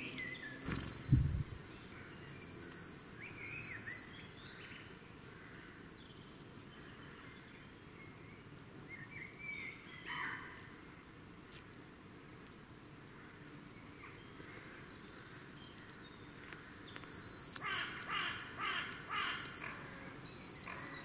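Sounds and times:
songbirds singing: 0.0s - 21.0s
bird wings fluttering: 0.6s - 1.6s.

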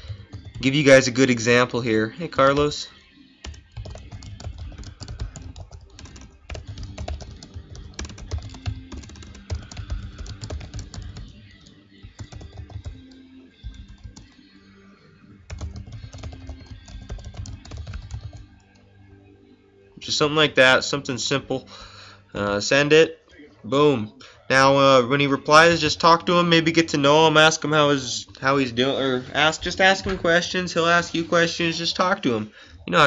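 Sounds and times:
typing on computer keyboard: 0.0s - 0.7s, 3.4s - 14.4s, 15.5s - 18.6s.

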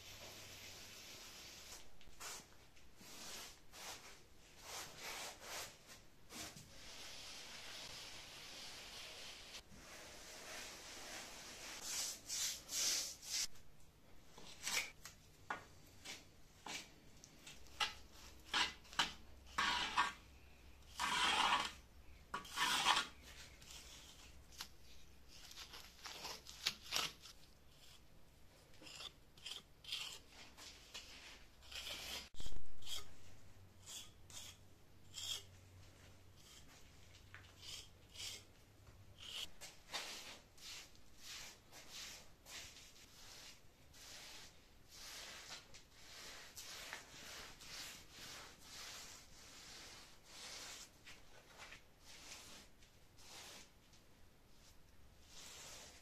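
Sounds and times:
hand float scraping plaster: 0.2s - 13.5s, 16.0s - 24.8s, 39.2s - 53.8s.

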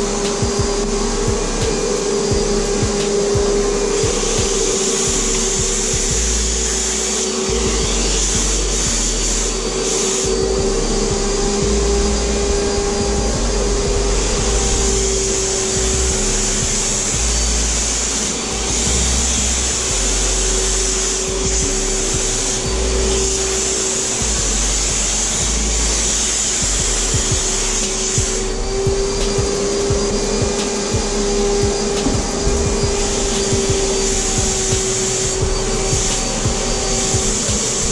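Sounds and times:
spray gun air hiss: 0.0s - 37.9s
turbine whine: 0.0s - 37.9s.

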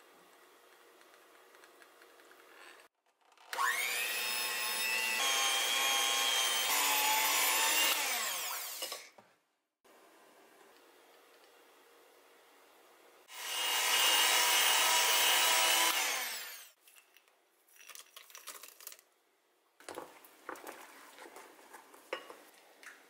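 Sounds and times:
electric hand mixer whirring: 3.5s - 9.0s, 13.3s - 16.8s.

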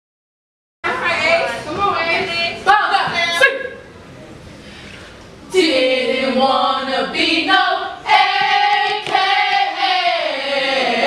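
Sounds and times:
women singing in unison: 5.5s - 11.0s.

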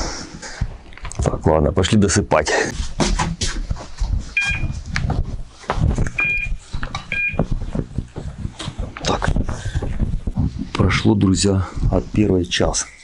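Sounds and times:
short electronic beeps: 4.4s - 4.7s, 6.2s - 7.4s.

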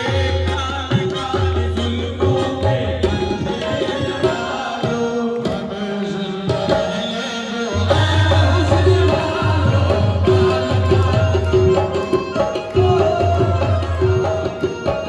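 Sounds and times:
harmoniums playing a melody: 0.0s - 15.0s
hand drum rhythm: 8.0s - 15.0s.

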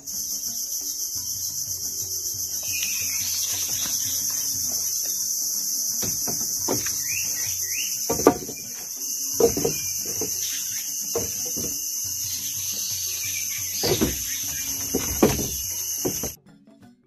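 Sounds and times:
high-pitched insect chorus: 0.0s - 16.4s
sharp knocks: 6.0s - 7.4s, 8.0s - 10.4s, 11.1s - 11.8s, 13.8s - 16.4s.

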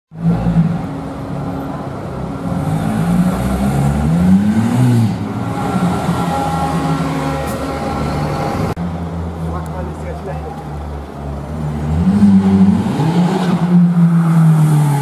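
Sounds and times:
engine revving: 11.5s - 15.0s.

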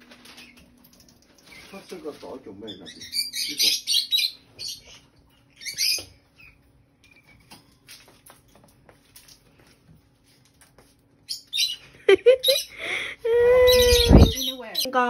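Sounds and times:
parrot chattering: 13.6s - 15.0s.

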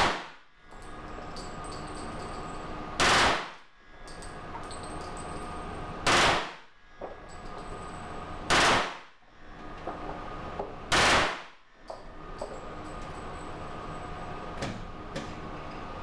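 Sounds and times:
gunshot echo: 0.0s - 0.4s, 3.0s - 3.6s, 6.0s - 6.7s, 8.5s - 9.1s, 10.9s - 11.6s.

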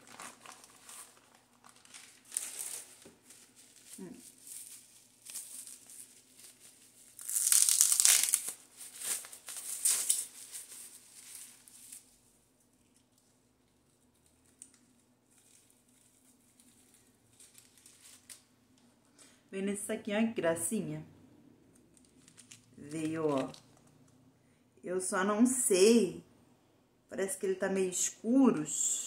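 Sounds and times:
plastic bags crinkling: 0.0s - 12.2s, 12.8s - 18.5s, 21.9s - 24.0s.

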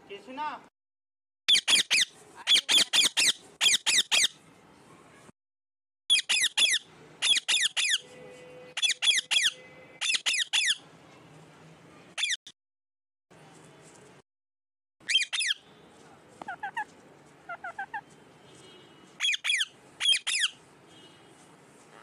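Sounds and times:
parakeet screeching: 1.5s - 4.4s, 6.1s - 8.1s, 8.8s - 10.8s, 12.2s - 12.4s, 15.0s - 15.6s, 16.5s - 16.9s, 17.5s - 18.1s, 19.2s - 20.6s.

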